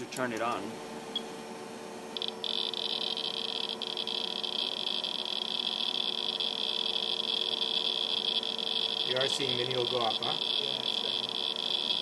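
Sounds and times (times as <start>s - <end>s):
geiger counter crackling buzz: 2.1s - 12.0s.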